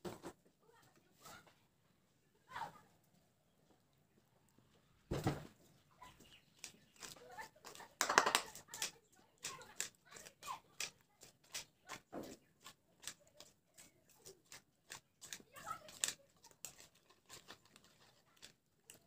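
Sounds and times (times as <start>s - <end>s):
spoon stirring in a bowl: 6.2s - 19.0s.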